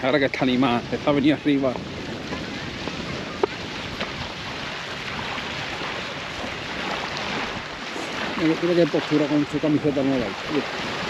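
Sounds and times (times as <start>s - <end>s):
water rushing: 0.0s - 11.0s
wind rushing: 0.4s - 11.0s.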